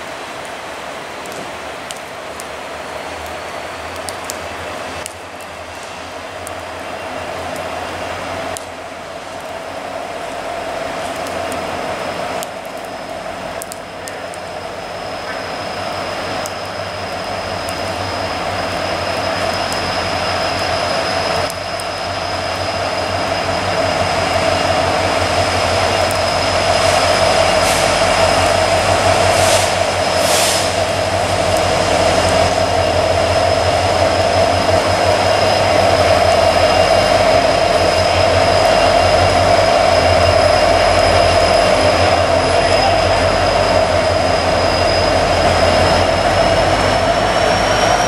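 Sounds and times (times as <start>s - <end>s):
diesel locomotives passing: 0.0s - 48.0s
thin high whine: 13.9s - 48.0s.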